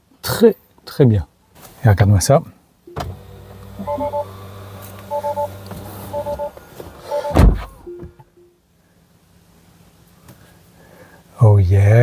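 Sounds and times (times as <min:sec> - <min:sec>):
electronic warning chime: 0:03.8 - 0:04.3, 0:05.1 - 0:06.5, 0:07.1 - 0:08.5
short single tone: 0:03.8 - 0:04.3, 0:07.1 - 0:08.6
heavy thump: 0:07.3 - 0:08.2.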